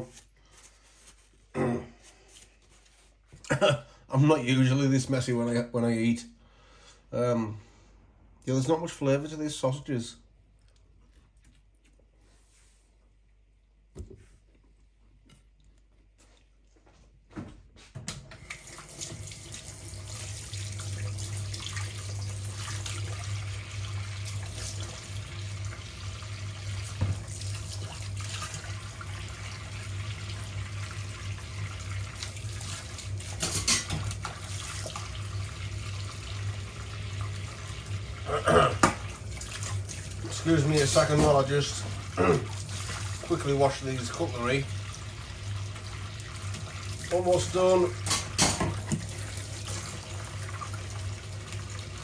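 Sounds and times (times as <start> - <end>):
tap running into sink: 26.9 - 27.3, 48.0 - 49.2.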